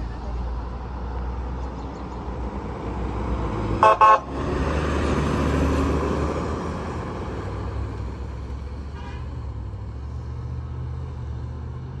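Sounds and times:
fire engine diesel engine: 0.0 - 12.0.

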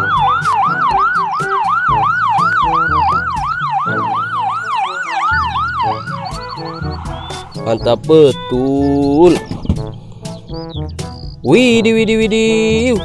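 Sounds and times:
ambulance siren yelping: 0.0 - 9.9.

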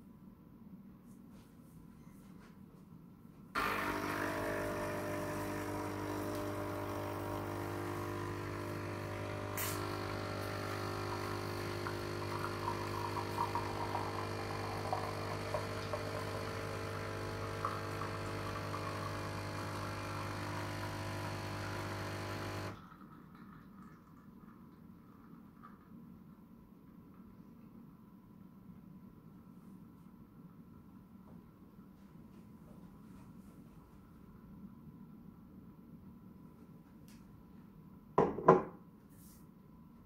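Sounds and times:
coffee machine pump humming: 3.6 - 23.6.

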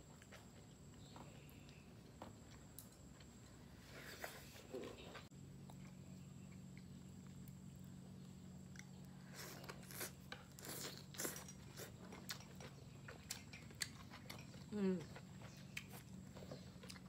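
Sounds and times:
low steady hum: 0.0 - 17.0
biting and chewing: 5.5 - 17.0.

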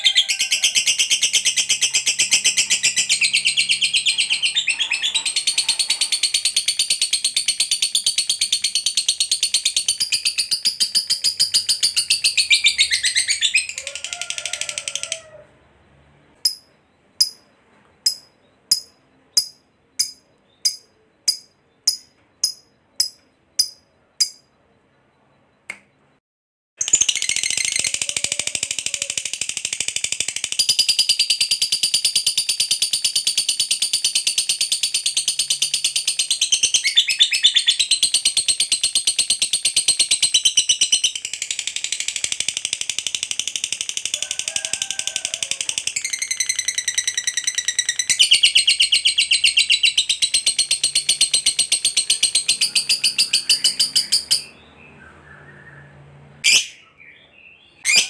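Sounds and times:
lovebird shrill chatter: 0.0 - 15.4.

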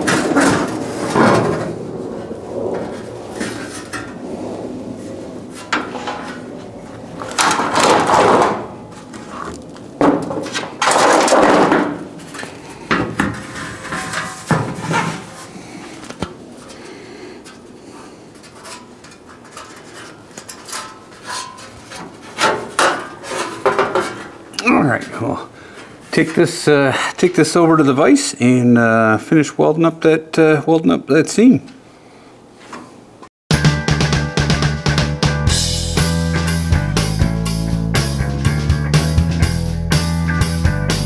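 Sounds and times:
sheet metal scraping and rattling: 0.0 - 25.2.

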